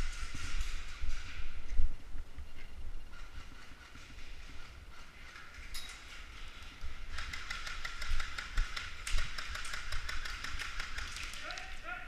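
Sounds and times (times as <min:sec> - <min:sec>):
airsoft gunfire clicking: 0:07.1 - 0:11.7.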